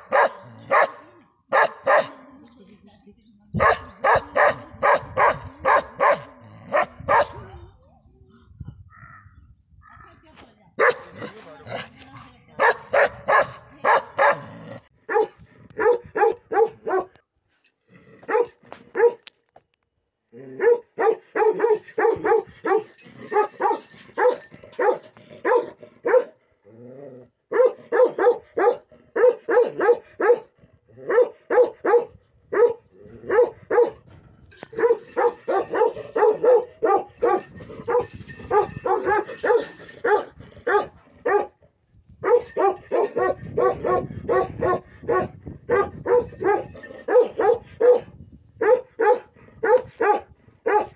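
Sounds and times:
dogs barking: 0.0s - 2.4s, 3.6s - 7.5s, 10.8s - 11.4s, 12.6s - 17.2s, 18.3s - 19.2s, 20.6s - 26.4s, 27.5s - 34.0s, 34.7s - 41.6s, 42.2s - 50.9s.

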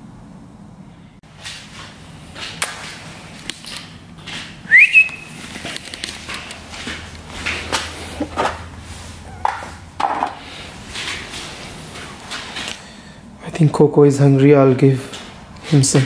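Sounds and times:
short high whistle: 4.7s - 5.4s.

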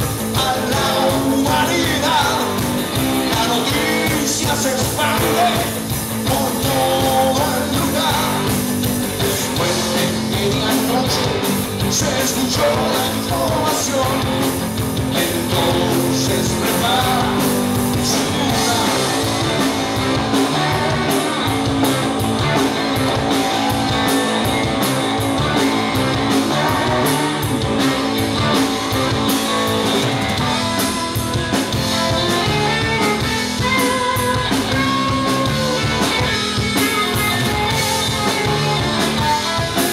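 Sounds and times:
man singing: 0.0s - 21.4s
distorted electric guitars: 0.0s - 39.9s
drum kit: 0.0s - 39.9s
electric bass: 0.0s - 39.9s.

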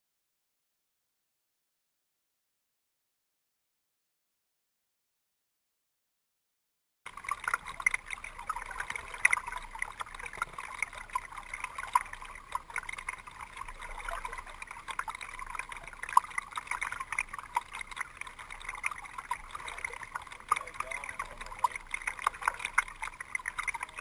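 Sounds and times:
kayak paddle splashing water: 7.1s - 24.0s.

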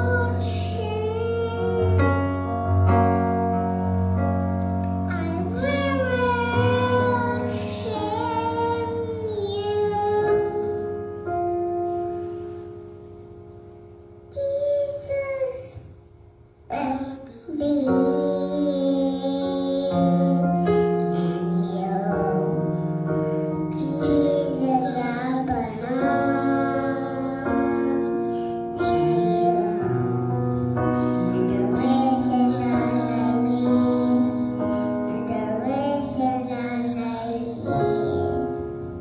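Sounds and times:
child singing into a microphone: 0.0s - 2.2s, 5.0s - 10.8s, 14.4s - 16.0s, 16.7s - 38.7s
keyboard sustained chords: 0.0s - 39.0s.

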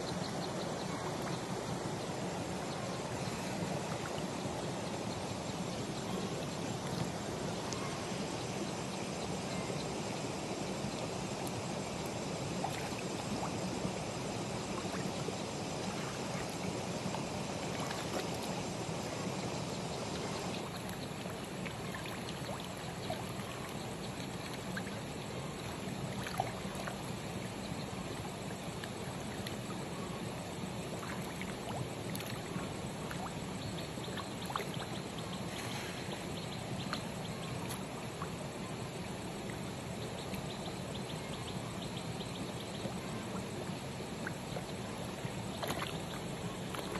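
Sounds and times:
rushing water noise: 9.6s - 40.4s, 42.9s - 46.9s.

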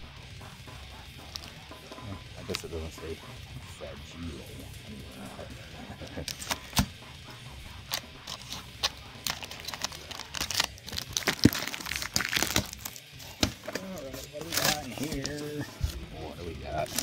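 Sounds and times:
knife slitting packing tape: 6.3s - 6.9s, 7.9s - 15.4s.

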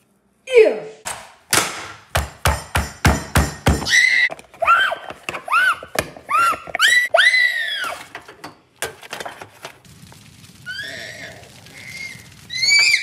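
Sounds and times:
high squealing cries: 3.9s - 8.0s, 10.6s - 13.0s.

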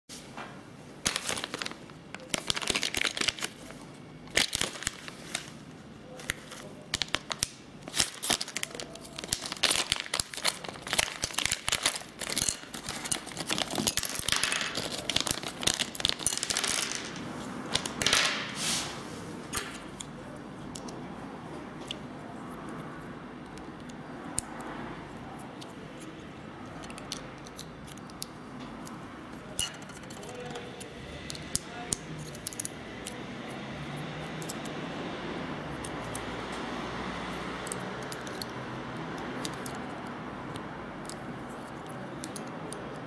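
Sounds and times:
plastic bag crinkling and tearing: 1.0s - 5.6s, 6.2s - 18.2s
small plastic parts clicking: 26.6s - 29.0s.

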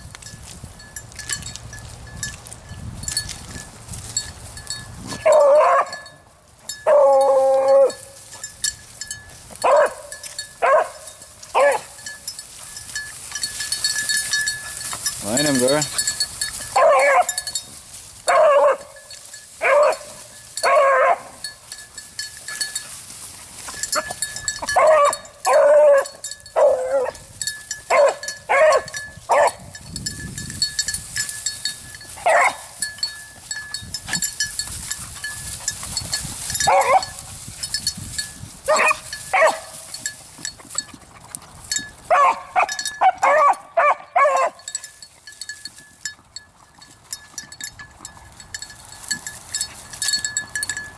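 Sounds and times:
dog baying: 5.2s - 6.0s, 6.8s - 8.2s, 16.7s - 17.5s, 18.3s - 19.0s, 19.6s - 21.4s, 23.9s - 27.3s, 27.9s - 29.6s, 36.6s - 37.2s.

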